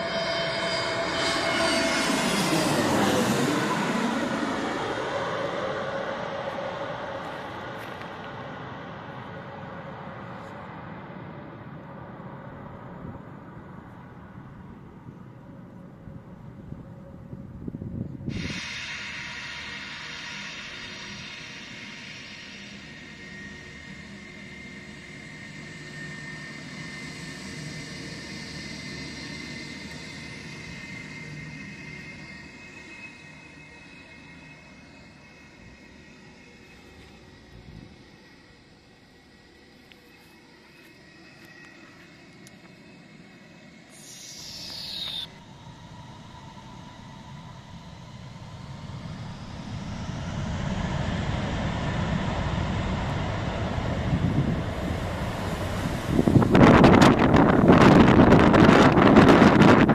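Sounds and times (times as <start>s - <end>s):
thin high whistle: 0.0s - 9.0s, 18.0s - 50.4s
jet engines roaring: 0.0s - 9.6s, 47.1s - 59.9s
jet engines at taxi power: 0.0s - 59.9s.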